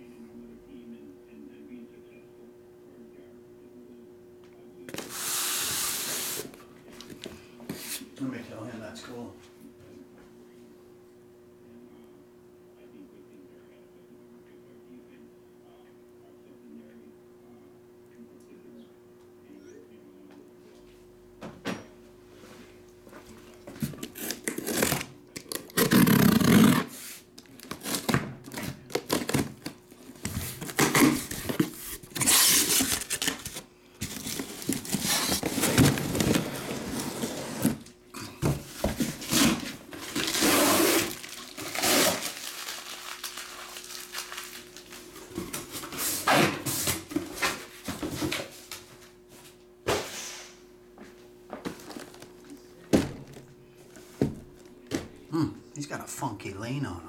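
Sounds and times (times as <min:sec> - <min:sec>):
tape tearing: 0:23.9 - 0:29.8, 0:30.4 - 0:37.9, 0:39.0 - 0:45.0
cardboard flaps rustling and scraping: 0:30.2 - 0:37.9.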